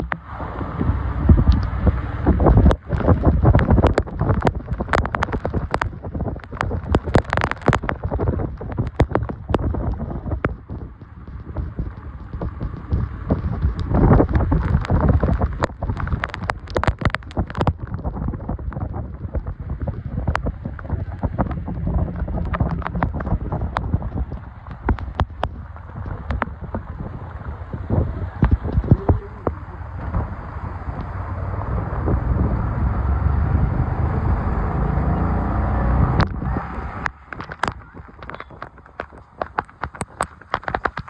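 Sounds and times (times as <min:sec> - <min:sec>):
heavy rain falling: 0:00.0 - 0:41.0
wind buffeting microphone: 0:00.0 - 0:41.0
sharp taps and knocks: 0:01.3 - 0:27.2, 0:37.0 - 0:41.0.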